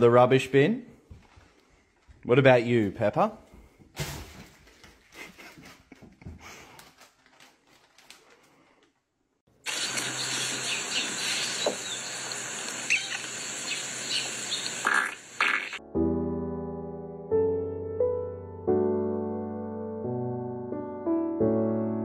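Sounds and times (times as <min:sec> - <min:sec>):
faint knocks and shuffles: 0:00.9 - 0:02.3
short bird chirps: 0:10.0 - 0:15.8.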